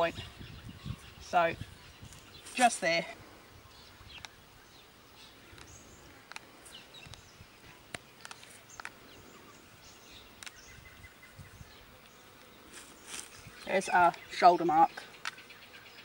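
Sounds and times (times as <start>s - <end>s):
small sharp clicks: 10.4s - 10.6s.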